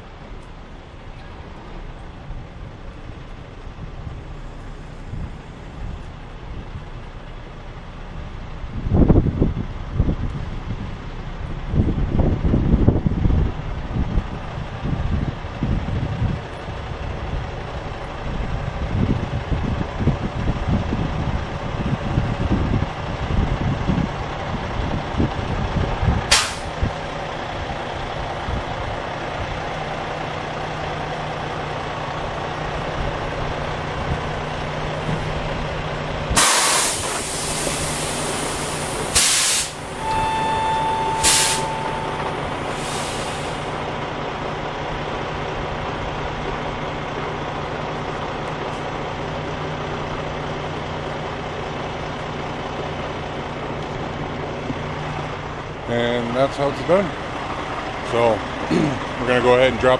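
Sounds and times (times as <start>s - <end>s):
diesel truck engine idling: 0.0s - 59.9s
air brake hiss: 26.3s - 26.7s, 36.4s - 43.8s
sharp click: 26.3s - 26.7s
steady beep: 39.9s - 42.7s.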